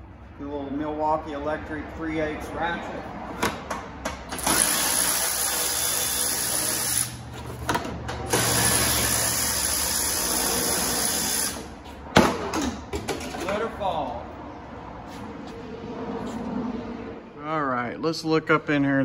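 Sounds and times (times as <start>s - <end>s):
electric ratchet running: 4.4s - 7.2s, 8.2s - 11.7s.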